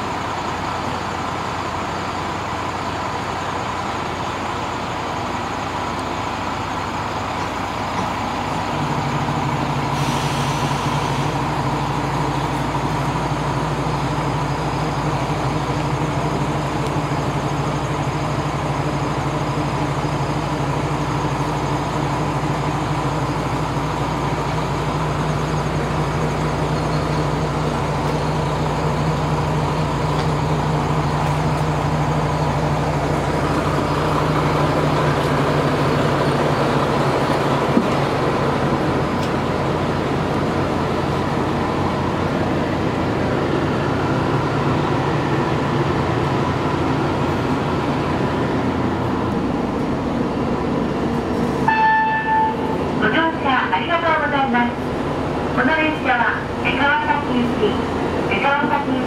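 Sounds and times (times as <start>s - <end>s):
diesel engine idling: 0.0s - 59.0s
air release hiss: 9.9s - 11.4s.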